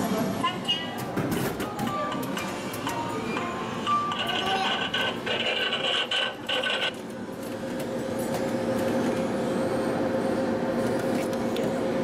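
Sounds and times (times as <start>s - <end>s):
mechanical hum: 0.0s - 12.0s.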